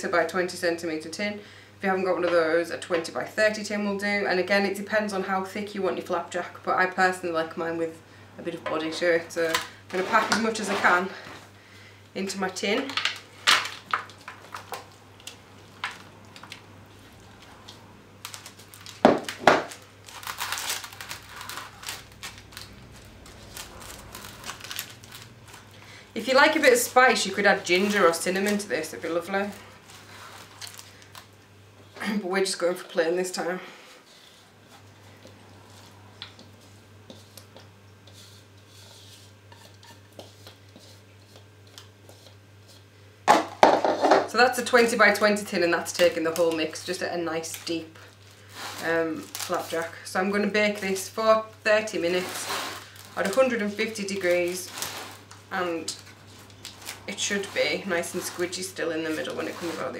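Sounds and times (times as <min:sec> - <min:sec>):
low steady hum: 0:00.0 - 0:59.9
utensil scraping plastic bowl: 0:08.8 - 0:11.4, 0:35.6 - 0:42.8, 0:51.8 - 0:59.9
baking paper crinkling: 0:08.8 - 0:11.5, 0:12.2 - 0:31.4, 0:34.1 - 0:42.9, 0:44.1 - 0:59.9
spoon scraping: 0:36.6 - 0:41.4.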